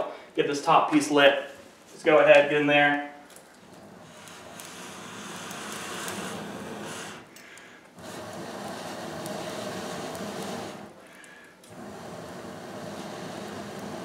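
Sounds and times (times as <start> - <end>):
air blowing through bellows tube: 3.6 - 11.1, 11.7 - 14.0.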